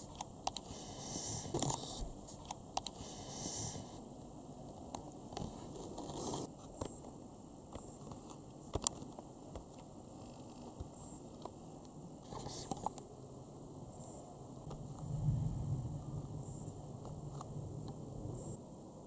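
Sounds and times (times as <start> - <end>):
small clicks and ticks: 0.0 - 3.0
faint background hiss: 0.0 - 19.0.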